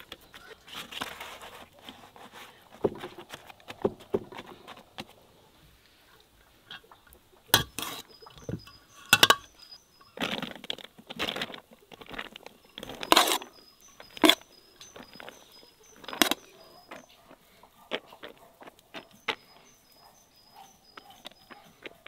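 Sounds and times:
metal skimmer clinking on bowl: 7.6 - 9.8.

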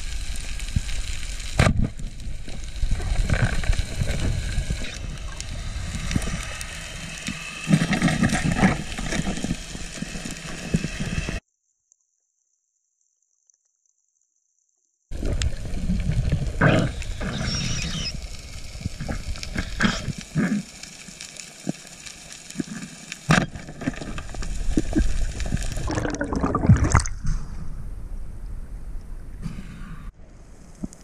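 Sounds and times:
water rushing and bubbling: 0.0 - 11.4, 15.1 - 27.8.

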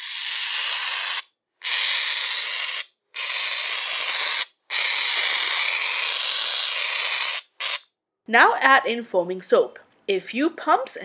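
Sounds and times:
aerosol can spraying: 0.0 - 7.9.

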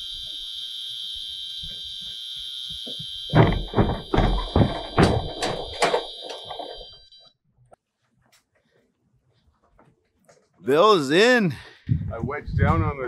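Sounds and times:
high continuous alarm tone: 0.0 - 7.4
heavy thuds: 3.3 - 6.8.

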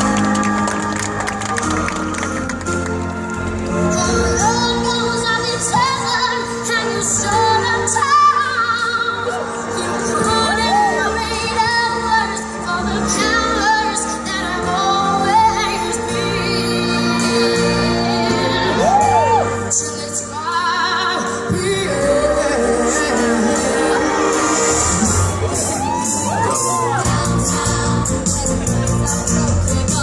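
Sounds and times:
backing track music: 0.0 - 30.0
young female voices singing: 26.3 - 30.0.

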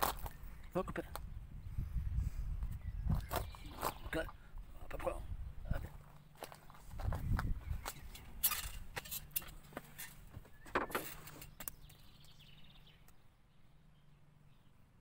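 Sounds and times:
scraping rustles: 5.8 - 11.8.

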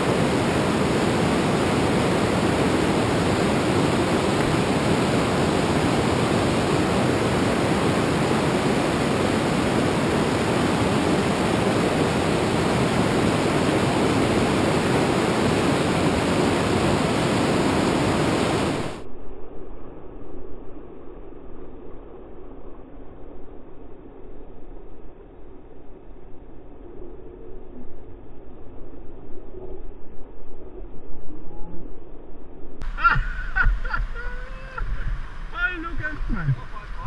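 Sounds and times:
whitewater rapids rushing: 0.0 - 19.0, 32.8 - 37.0.

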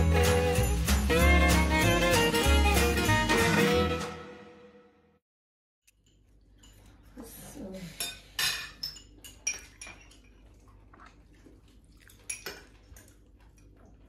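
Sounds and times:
cutlery clinking on plates: 8.0 - 10.3.

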